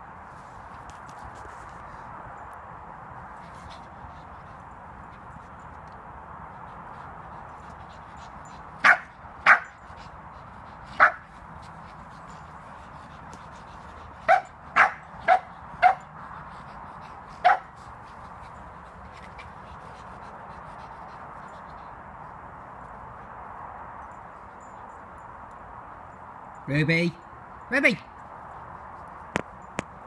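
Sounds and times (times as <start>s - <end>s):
small dog barking: 8.8s - 9.7s, 11.0s - 11.2s, 14.3s - 16.0s, 17.4s - 17.7s.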